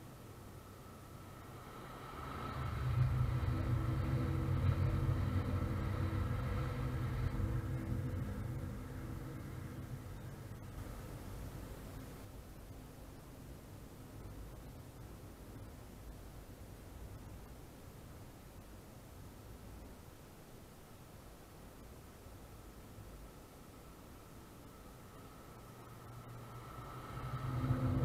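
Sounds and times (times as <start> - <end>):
low rumble: 0.0 - 13.0, 23.8 - 28.0
light hiss: 0.0 - 28.0
train passing at speed: 0.5 - 12.3, 23.9 - 28.0.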